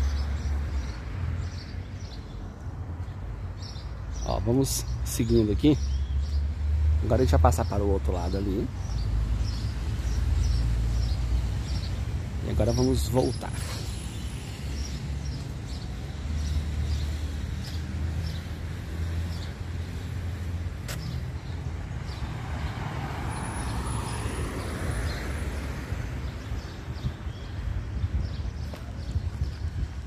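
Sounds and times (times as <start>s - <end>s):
low traffic rumble: 0.0s - 30.0s
car passing: 13.4s - 26.4s.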